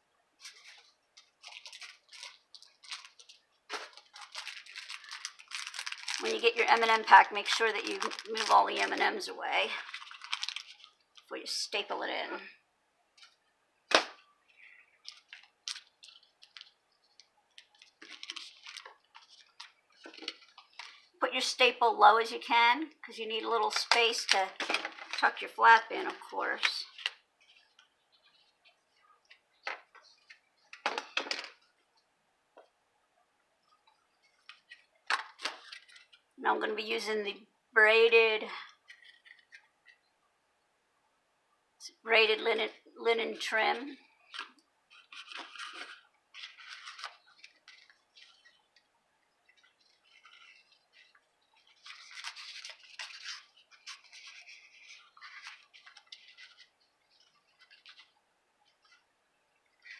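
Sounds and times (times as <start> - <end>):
paper rustling: 0.4 - 11.3, 13.2 - 21.2, 26.0 - 31.8, 33.8 - 36.3, 38.8 - 40.0, 44.3 - 59.9
paper and trim rustling: 44.4 - 48.6, 49.5 - 59.0.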